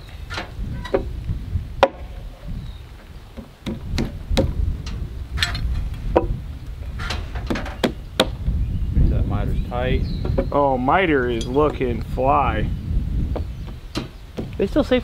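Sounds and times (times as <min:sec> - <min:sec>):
hand tools knocking on timber: 0:03.4 - 0:04.5
low rumble: 0:03.8 - 0:13.8.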